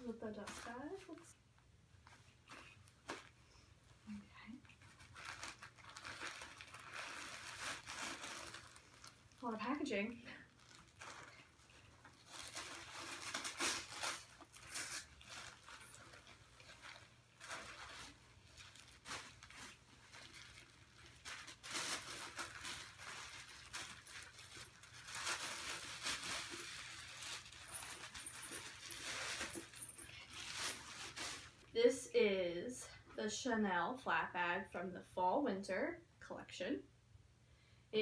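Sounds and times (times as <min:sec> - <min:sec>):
packaging rustling and crinkling: 0:00.2 - 0:01.3, 0:04.6 - 0:31.7.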